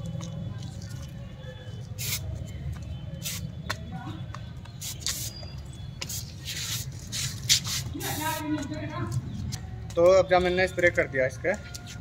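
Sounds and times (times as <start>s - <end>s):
aerosol spray hissing: 2.0s - 2.3s.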